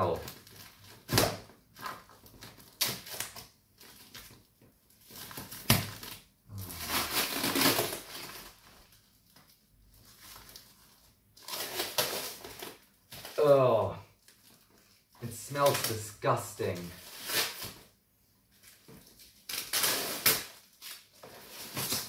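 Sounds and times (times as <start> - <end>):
wrapping rustling and crinkling: 0.0 - 22.0
knife cutting packing tape: 5.3 - 8.4, 11.4 - 12.8, 17.0 - 17.8, 19.4 - 22.0.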